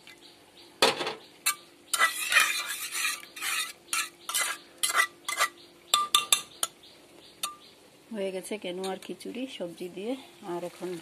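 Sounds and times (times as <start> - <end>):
ladle scraping a pot: 1.4 - 6.5.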